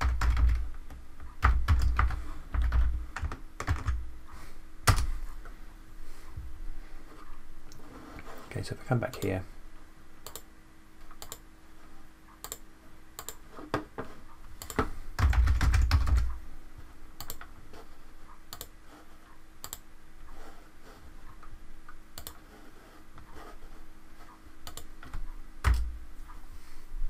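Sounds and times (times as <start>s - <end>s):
keyboard typing: 0.0s - 4.0s, 10.2s - 10.5s, 12.4s - 12.6s, 13.2s - 13.4s, 14.6s - 16.4s, 17.2s - 17.5s, 18.5s - 18.8s, 22.2s - 22.4s, 24.6s - 25.9s.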